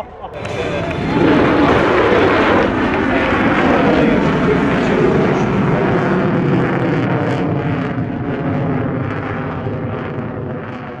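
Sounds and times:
turboprop aircraft droning: 0:00.0 - 0:11.0.

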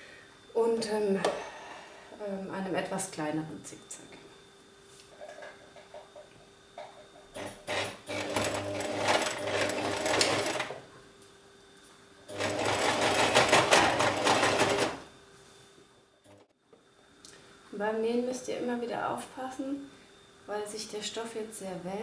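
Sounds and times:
sewing machine stitching: 0:07.4 - 0:10.8, 0:12.3 - 0:15.0.

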